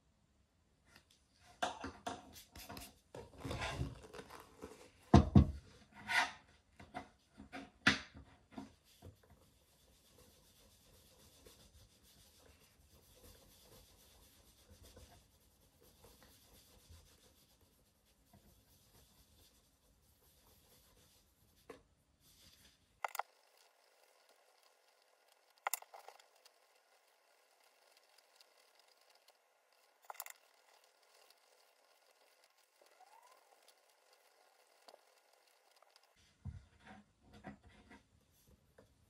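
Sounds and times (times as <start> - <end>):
cloth rubbing on leather shoe: 8.9 - 22.9.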